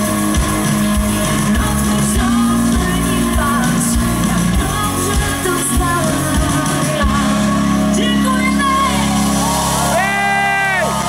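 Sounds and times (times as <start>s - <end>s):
steady drum beat: 0.0s - 7.6s
bass guitar: 0.0s - 11.0s
electric guitar: 0.0s - 11.0s.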